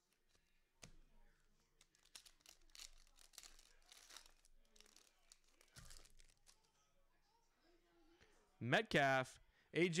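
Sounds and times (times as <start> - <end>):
foil wrappers tearing and crinkling: 1.8 - 6.6.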